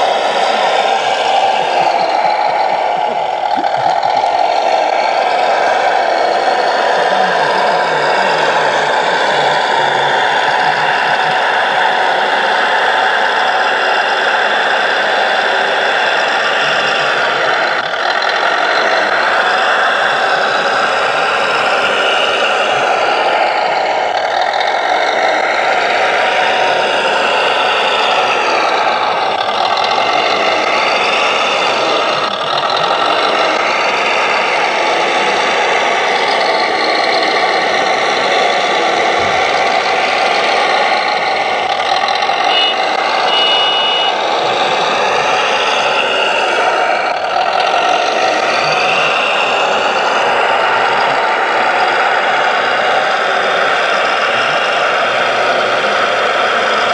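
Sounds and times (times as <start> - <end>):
hydraulic pump whirring: 0.0 - 52.3
diesel engine running under load: 0.0 - 56.9
short high beeping: 42.5 - 44.1.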